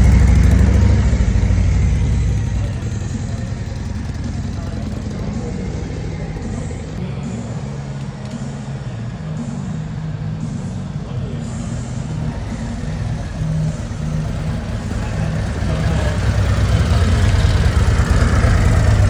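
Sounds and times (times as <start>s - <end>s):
motorcycle engine pulsing: 0.0s - 7.0s, 10.9s - 19.0s.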